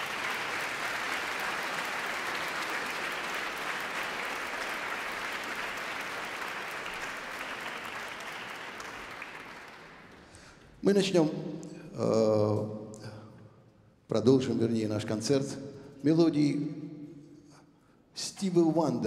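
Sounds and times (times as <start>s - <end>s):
audience applauding: 0.0s - 10.6s.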